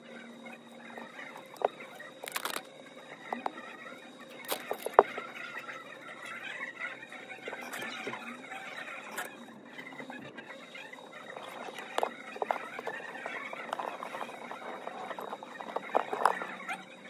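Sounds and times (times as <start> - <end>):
small plastic and metal clicks: 1.4 - 2.7.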